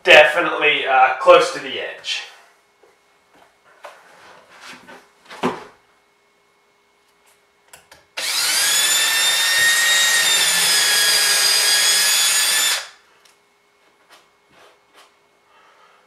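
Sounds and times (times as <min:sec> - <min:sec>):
cordless drill whining: 0:08.2 - 0:13.0.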